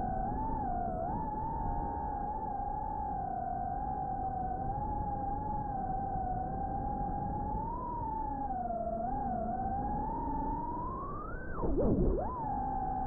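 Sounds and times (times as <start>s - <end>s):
drone motors whining: 11.1s - 13.0s.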